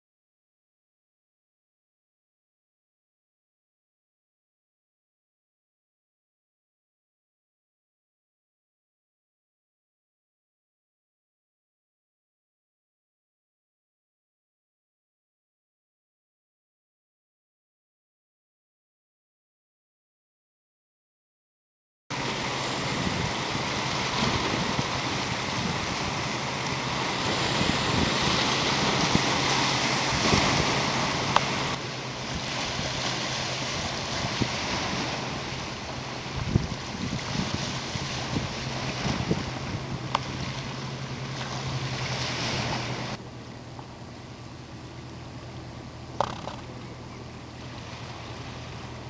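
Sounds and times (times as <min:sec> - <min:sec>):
small waves washing against boulders: 0:22.1 - 0:43.2, 0:46.2 - 0:46.7
wind rumbling on microphone: 0:22.1 - 0:43.3, 0:45.3 - 0:49.0
low steady hum: 0:22.1 - 0:49.0.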